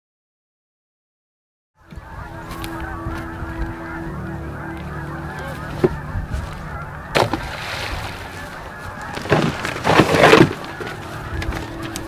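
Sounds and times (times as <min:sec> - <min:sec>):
flock of geese honking: 0:01.8 - 0:12.0
steady low hum: 0:01.9 - 0:09.1.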